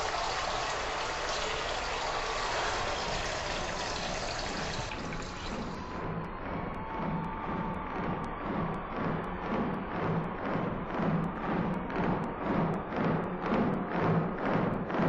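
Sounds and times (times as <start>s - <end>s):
running water rushing: 0.0s - 5.9s.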